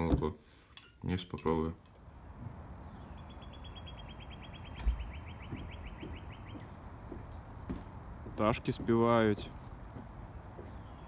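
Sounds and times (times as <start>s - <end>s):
songbird trilling: 2.8s - 6.8s.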